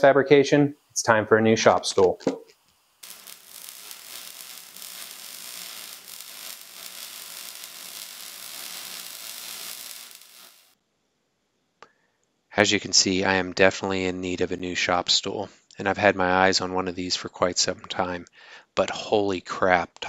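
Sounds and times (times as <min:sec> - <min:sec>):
high-pitched hiss with crackle: 0:00.0 - 0:10.8.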